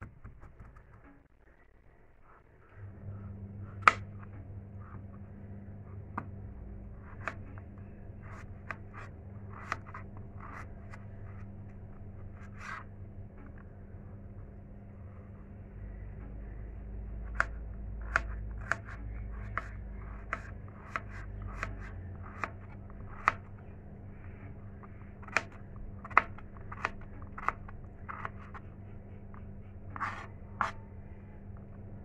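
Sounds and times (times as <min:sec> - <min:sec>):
knife chopping on cutting board: 0:03.8 - 0:04.1, 0:17.4 - 0:23.5, 0:25.2 - 0:28.6.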